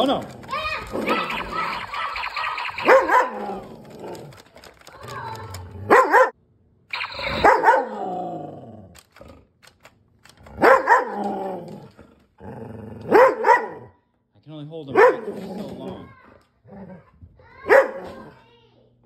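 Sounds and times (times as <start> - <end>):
dog barking: 2.8 - 3.5, 5.9 - 6.4, 7.3 - 8.0, 10.6 - 11.2, 13.1 - 14.0, 14.9 - 15.4, 17.6 - 18.2.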